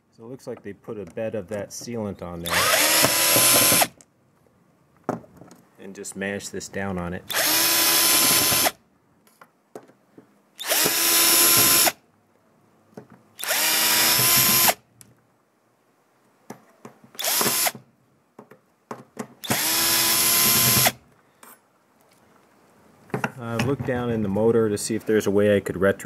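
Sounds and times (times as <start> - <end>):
power drill whining: 2.4 - 4.0, 7.3 - 8.8, 10.6 - 12.0, 13.4 - 14.8, 17.2 - 17.8, 19.4 - 21.0.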